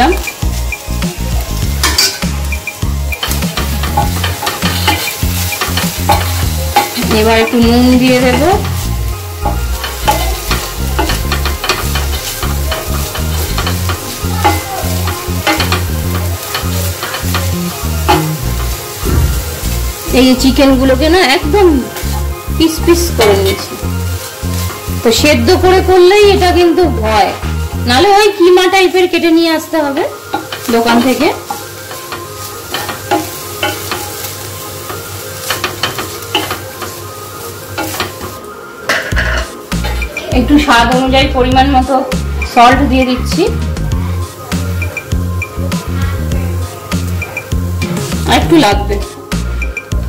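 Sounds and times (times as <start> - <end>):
background music with bass line: 0.0 - 28.1, 39.2 - 50.0
light sizzle of frying: 0.0 - 50.0
spatula scraping metal pan: 3.2 - 20.6.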